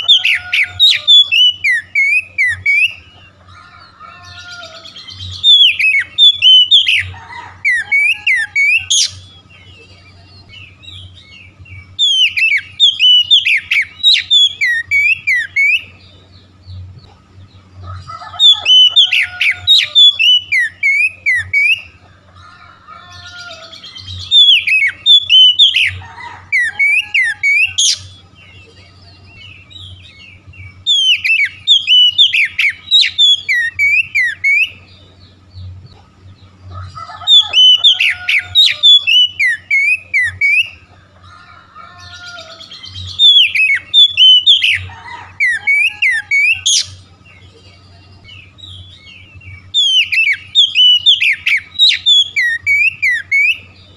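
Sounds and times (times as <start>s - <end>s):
bird singing varied whistles: 0.0s - 3.0s, 4.9s - 7.1s, 11.2s - 15.9s, 18.4s - 21.9s, 23.9s - 26.0s, 30.1s - 34.8s, 37.3s - 40.8s, 42.7s - 44.9s, 49.0s - 53.8s.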